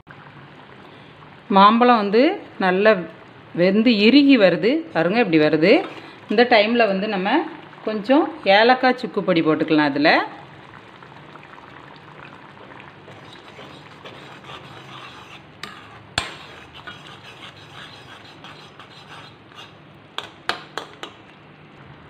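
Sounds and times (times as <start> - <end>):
spoon stirring and scraping pan: 5.6 - 6.7, 12.6 - 21.3.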